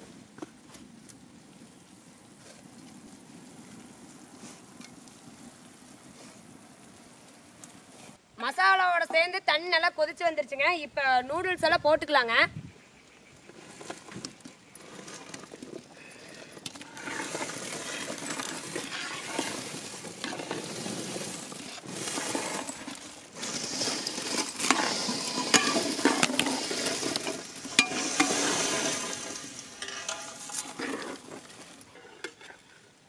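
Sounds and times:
metal ladle scraping a pot: 16.8s - 32.6s.

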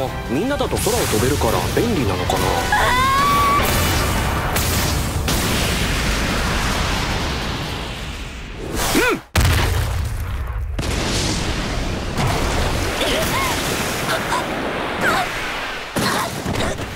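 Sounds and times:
rumbling energy blast: 3.5s - 8.8s.

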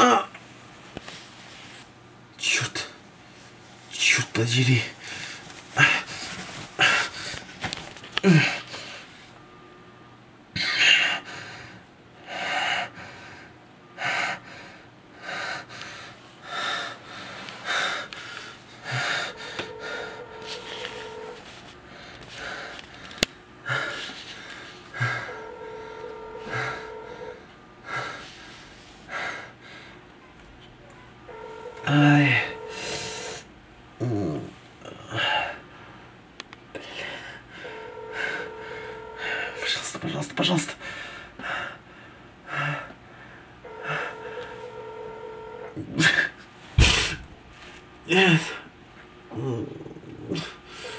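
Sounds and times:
strained noisy breathing: 4.9s - 9.6s, 10.6s - 30.2s, 31.3s - 33.5s, 36.7s - 40.0s, 40.7s - 47.8s, 50.3s - 50.9s
man groaning in pain: 8.2s - 8.6s
steady tone: 18.8s - 22.6s, 24.9s - 28.7s, 30.2s - 34.4s, 37.5s - 40.1s, 43.6s - 45.8s.

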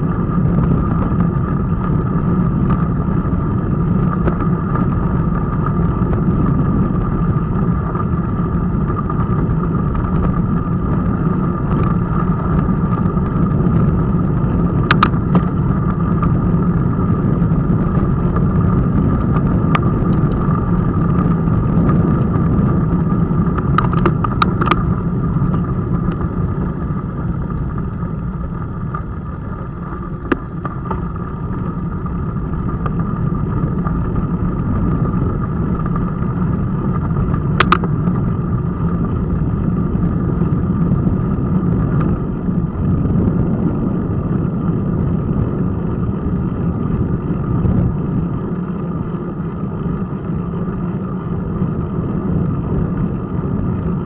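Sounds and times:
bicycle tyres rolling on gravel: 0.0s - 54.0s
wind rumble on microphone: 0.0s - 54.0s
sharp clicks or rattles: 23.6s - 24.9s, 37.6s - 37.9s.

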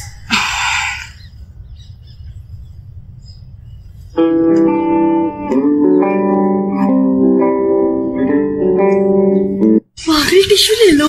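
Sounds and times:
guitar melody: 4.2s - 9.9s.

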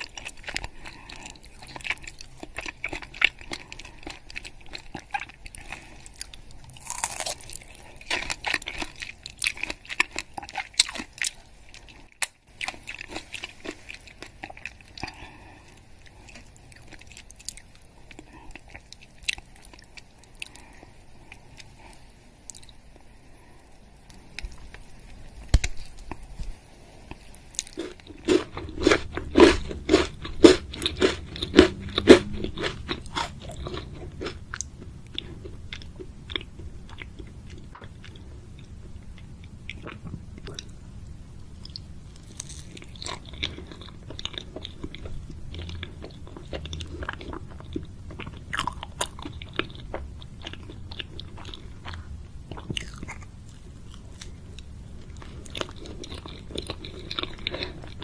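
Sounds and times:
chocolate cracking and crunching: 0.0s - 15.3s, 25.4s - 26.2s, 41.6s - 58.0s
soft chewing: 0.0s - 58.0s.

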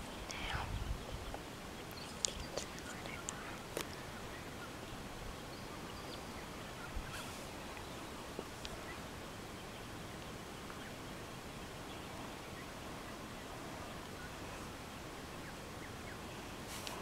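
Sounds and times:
faint outdoor background noise: 0.0s - 17.0s.

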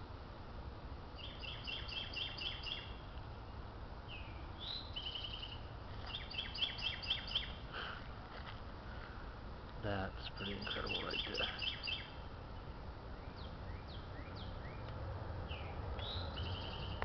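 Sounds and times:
low outdoor rumble: 0.0s - 17.0s
songbird chirping: 1.1s - 17.0s
bird trill: 1.2s - 3.1s, 4.1s - 7.6s, 10.2s - 12.3s, 13.1s - 14.9s, 15.5s - 17.0s
other bird calls: 1.2s - 3.1s, 4.1s - 8.0s, 10.1s - 12.3s, 15.5s - 17.0s.

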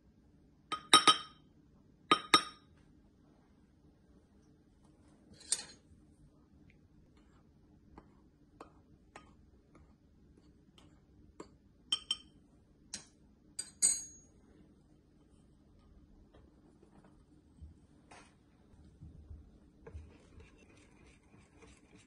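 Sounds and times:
metal spoon clinking against bowls: 0.7s - 1.4s, 11.9s - 12.4s, 13.0s - 14.3s.

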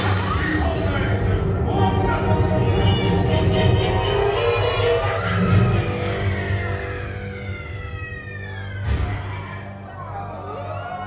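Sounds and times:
gliding tones over low drone: 0.0s - 8.8s
eerie soundtrack music: 0.0s - 11.0s.

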